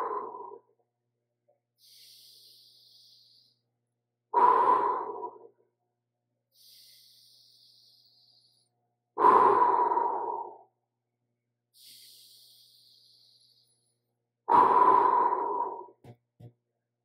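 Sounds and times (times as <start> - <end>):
hissing breaths: 0.0 - 0.7, 1.8 - 3.7, 4.4 - 5.6, 6.5 - 10.7, 11.8 - 16.0
person breathing deeply: 0.0 - 0.7, 1.8 - 3.7, 4.3 - 5.6, 6.5 - 10.7, 11.8 - 16.0.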